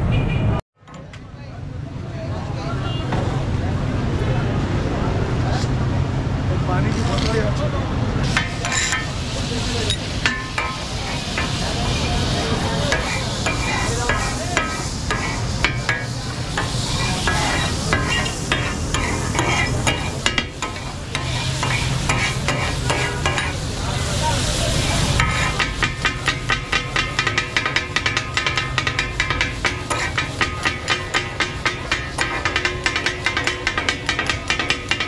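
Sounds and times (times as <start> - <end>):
metal spatulas chopping on griddle: 8.2 - 23.8, 24.5 - 35.0
frying sizzle: 8.2 - 35.0.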